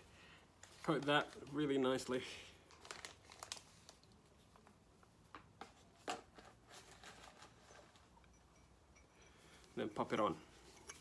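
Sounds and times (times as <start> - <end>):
soft handling clicks and rustles: 2.7 - 11.0.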